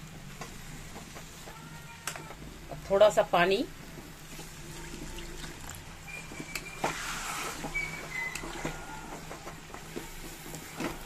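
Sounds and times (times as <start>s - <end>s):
short squeaks: 6.1s - 9.1s.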